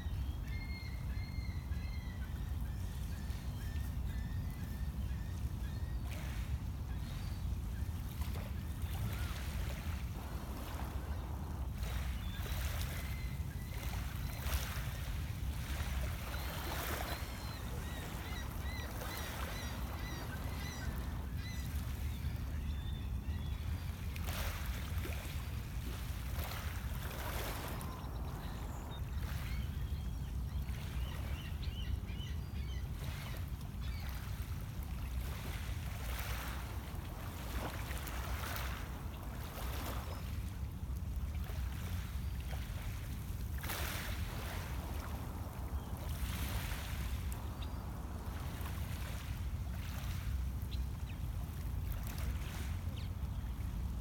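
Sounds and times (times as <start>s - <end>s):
faint bird chirps: 15.7s - 23.8s.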